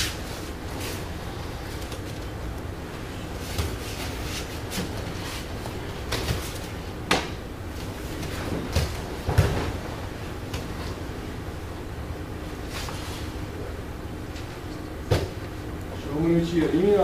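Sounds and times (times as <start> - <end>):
bodies thumping on a padded mat: 8.2 - 10.0.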